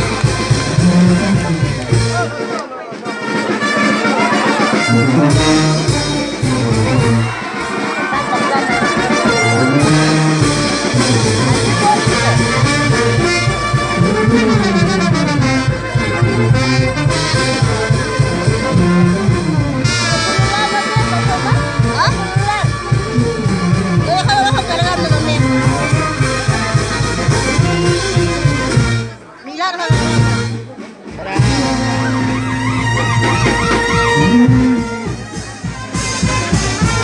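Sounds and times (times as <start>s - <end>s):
steady low beat: 0.0s - 2.4s, 4.9s - 7.4s, 9.4s - 29.2s, 30.0s - 36.1s
brass band playing: 0.0s - 37.0s
trumpets playing melody: 0.0s - 37.0s.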